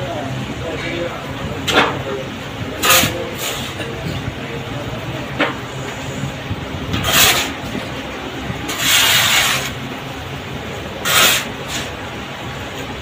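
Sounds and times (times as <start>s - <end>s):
steady low hum: 0.0s - 13.0s
sand pouring: 8.7s - 9.8s, 11.0s - 12.0s.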